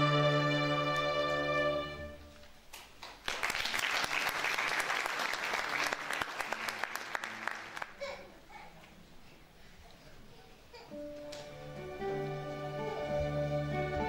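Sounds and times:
string orchestra chord: 0:00.0 - 0:02.3, 0:11.3 - 0:14.0
audience applause: 0:03.0 - 0:08.0.

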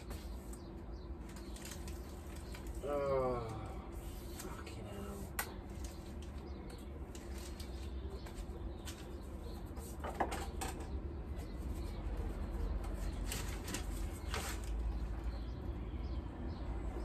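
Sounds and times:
items knocking and rustling: 0:07.5 - 0:11.0.

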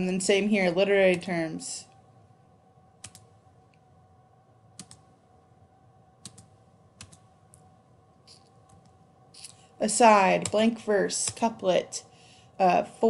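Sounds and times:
faint steady hum: 0:00.0 - 0:13.0
computer clicks: 0:03.0 - 0:03.3, 0:04.8 - 0:05.1, 0:06.2 - 0:07.6.

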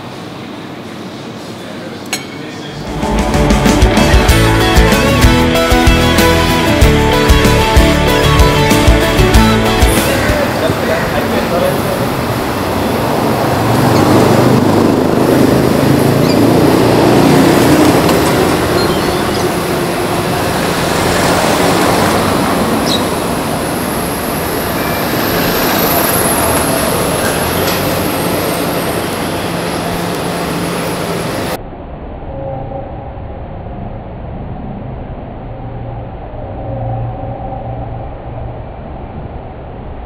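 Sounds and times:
road traffic rumble: 0:00.0 - 0:40.0
faint high whine: 0:28.1 - 0:40.0.

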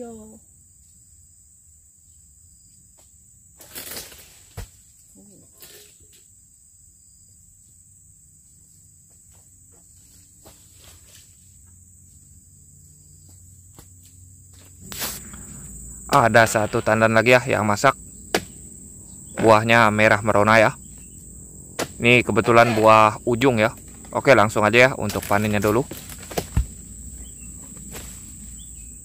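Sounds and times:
insects chirring: 0:00.0 - 0:29.0
footsteps rustling through grass: 0:14.6 - 0:15.3.

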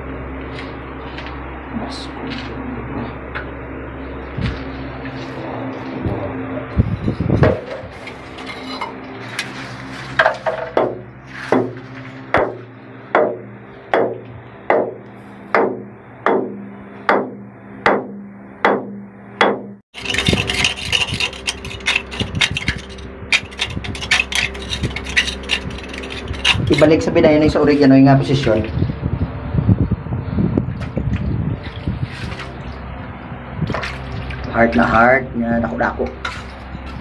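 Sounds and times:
hammer striking rock: 0:14.0 - 0:15.0, 0:15.6 - 0:19.7
tapping and scraping at rock: 0:20.0 - 0:27.0.

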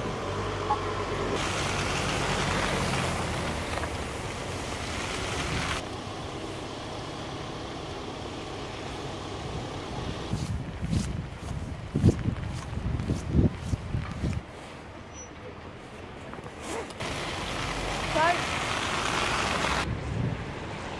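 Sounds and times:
car engine hum: 0:00.0 - 0:10.7
tyres churning through slush: 0:01.4 - 0:10.4, 0:16.6 - 0:19.9.

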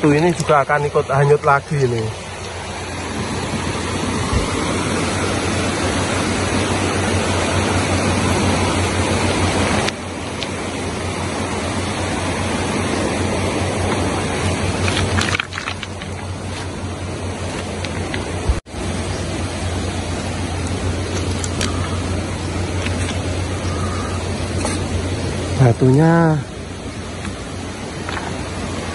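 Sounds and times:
muddy river rushing: 0:00.0 - 0:28.9.

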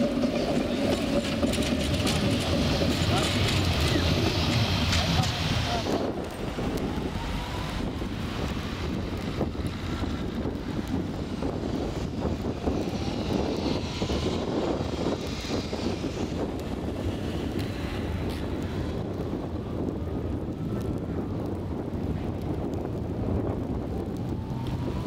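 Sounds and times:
trolleybus motor whine: 0:00.0 - 0:25.0
wind on microphone: 0:00.0 - 0:25.0.

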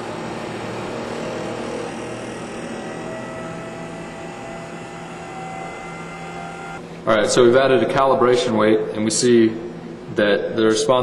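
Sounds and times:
motor and shaft humming: 0:00.0 - 0:07.4
faint rising whine: 0:00.0 - 0:10.0.

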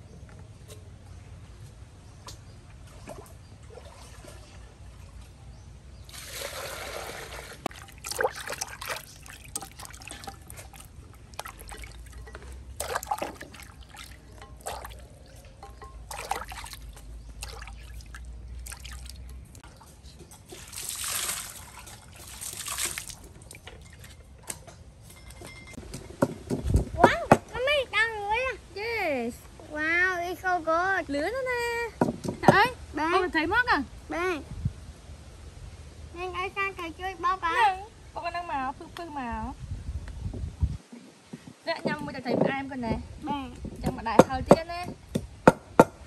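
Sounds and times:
water pouring into basin: 0:06.1 - 0:15.4, 0:16.0 - 0:19.3, 0:20.6 - 0:23.6.

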